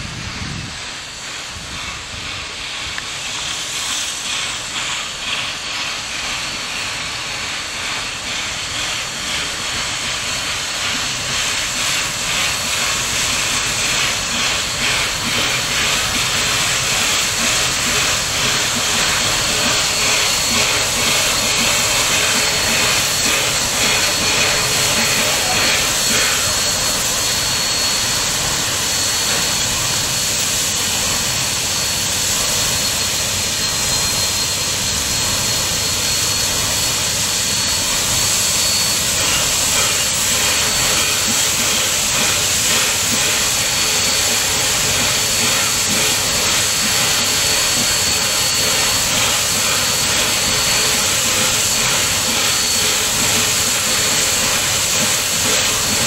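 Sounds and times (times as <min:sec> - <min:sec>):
passenger train running noise: 0:00.0 - 0:56.0.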